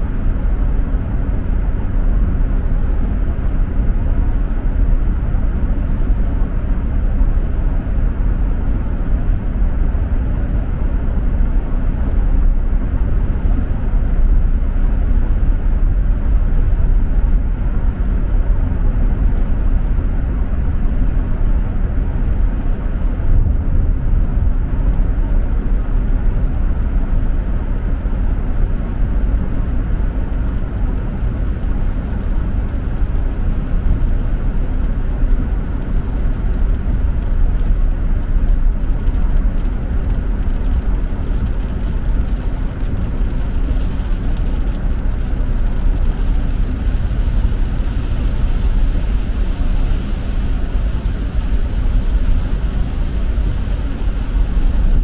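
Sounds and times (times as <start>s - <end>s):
tyre and road noise: 0.0s - 55.0s.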